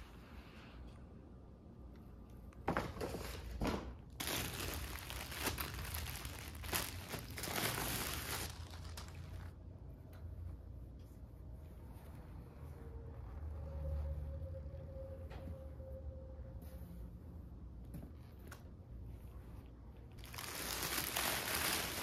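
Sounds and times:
plastic packaging crinkling: 4.1 - 9.5, 20.2 - 22.0.

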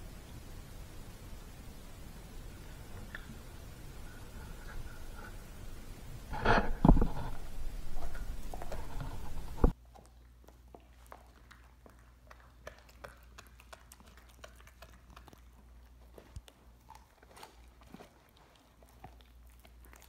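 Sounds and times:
dog chewing on bone: 2.8 - 20.0
teeth clicking on bone: 9.7 - 20.0.

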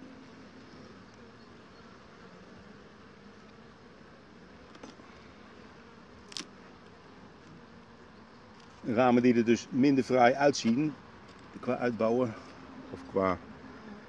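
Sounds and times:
bees buzzing: 0.0 - 14.0
hive tool clicking on wooden frames: 4.6 - 5.1, 6.1 - 7.6.

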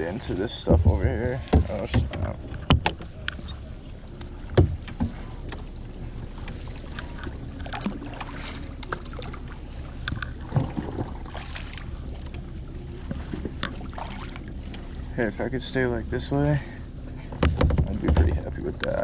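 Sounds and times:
water lapping along hull: 0.0 - 19.0
paddle strokes splashing: 1.4 - 15.1.

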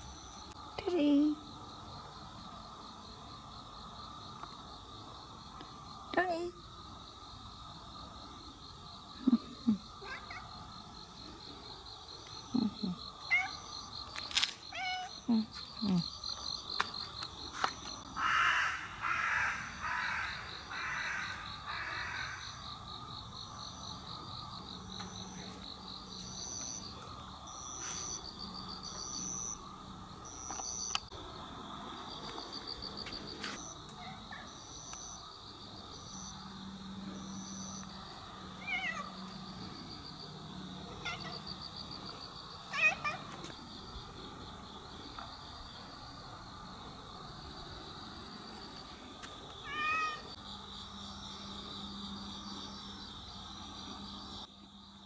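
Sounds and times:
night insects trilling: 0.0 - 55.0
crow cawing: 18.2 - 22.6.

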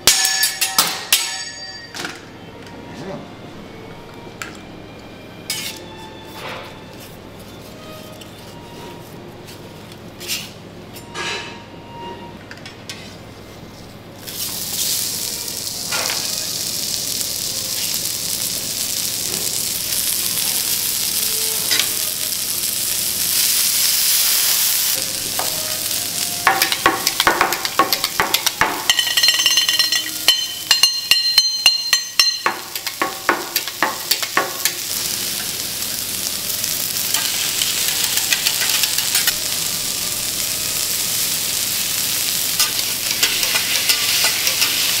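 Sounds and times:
metal spatula clinking on griddle: 0.0 - 2.0, 26.4 - 34.8, 42.6 - 45.0
food sizzling on griddle: 14.2 - 45.0.

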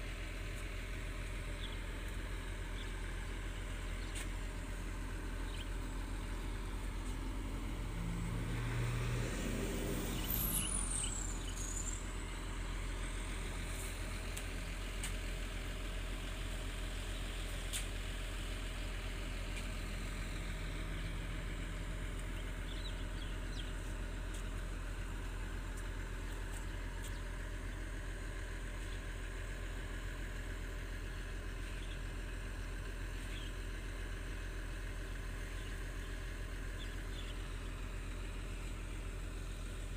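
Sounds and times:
excavator diesel engines running: 0.0 - 39.9.

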